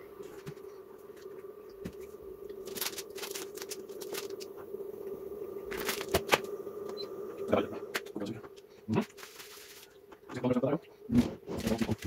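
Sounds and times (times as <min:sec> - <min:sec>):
steady hum: 0:00.0 - 0:12.0
wrappers crinkling and rustling: 0:02.6 - 0:04.5, 0:05.7 - 0:06.5, 0:09.1 - 0:09.9.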